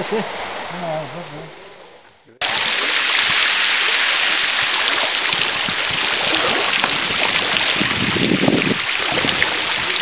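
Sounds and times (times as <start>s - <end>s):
water drops striking water: 2.4s - 10.0s.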